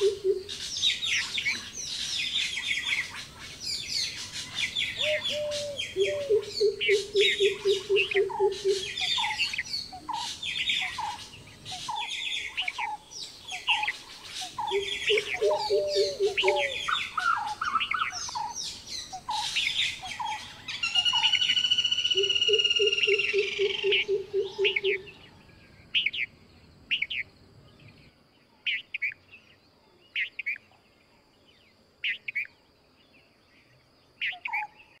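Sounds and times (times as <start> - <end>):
birds chirping and whistling: 0.0 - 25.4, 34.2 - 35.0.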